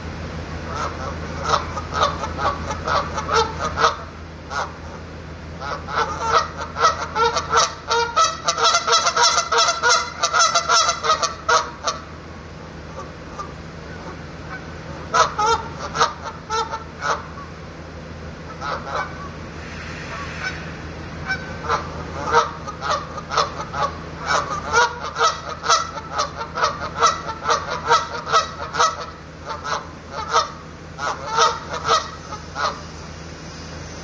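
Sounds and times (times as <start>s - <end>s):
steady low hum: 0.0s - 34.0s
geese honking: 0.6s - 5.0s, 5.6s - 12.1s, 12.9s - 17.6s, 18.4s - 32.9s.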